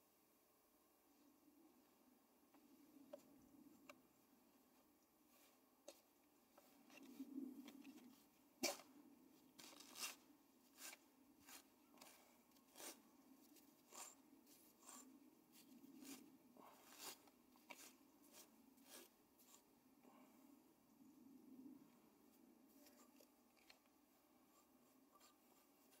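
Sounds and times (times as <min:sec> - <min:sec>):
flax combing strokes on pins: 0:09.5 - 0:19.7, 0:22.7 - 0:26.0.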